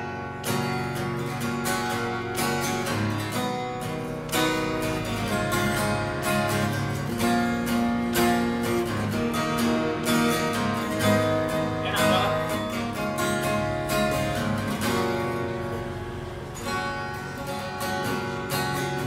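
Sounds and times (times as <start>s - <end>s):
acoustic guitar chords strummed: 0.0s - 19.0s.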